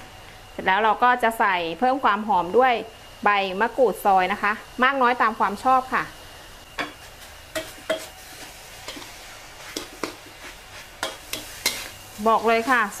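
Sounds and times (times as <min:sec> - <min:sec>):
faint sizzle: 0:00.0 - 0:13.0
metal spatula scraping wok: 0:07.0 - 0:13.0.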